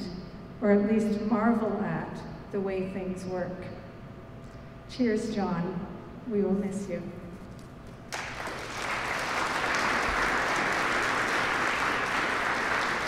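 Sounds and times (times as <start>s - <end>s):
audience applauding: 8.1s - 13.0s.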